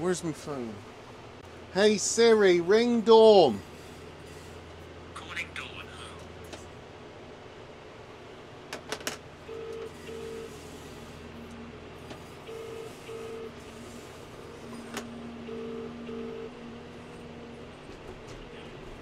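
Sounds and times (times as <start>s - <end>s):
telephone ringing tone: 9.5s - 10.6s, 12.5s - 13.6s, 15.5s - 16.6s.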